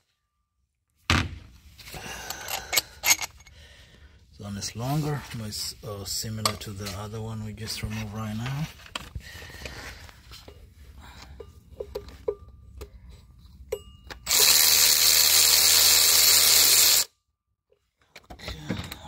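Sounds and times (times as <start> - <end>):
cordless power tool spinning: 14.3 - 17.1.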